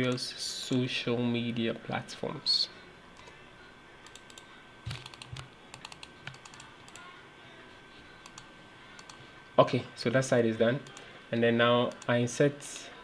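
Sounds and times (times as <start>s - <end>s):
keyboard typing: 4.0s - 7.0s, 8.2s - 9.2s.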